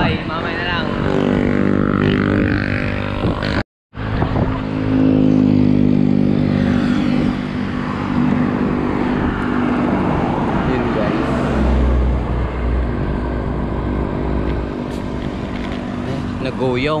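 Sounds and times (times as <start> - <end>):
road and wind rumble: 0.0 - 17.0
vehicle engine droning: 0.1 - 17.0.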